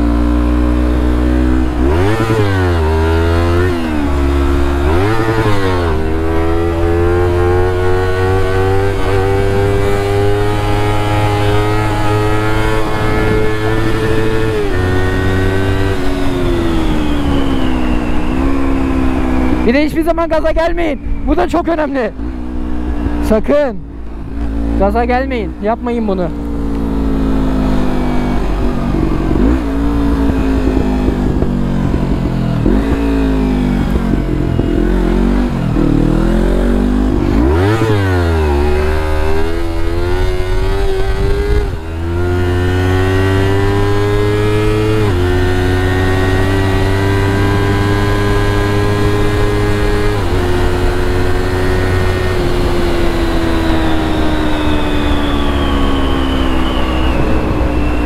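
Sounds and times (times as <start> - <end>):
motorcycle engine revving: 0.0 - 58.0
motorcycle gear changes: 26.3 - 55.3.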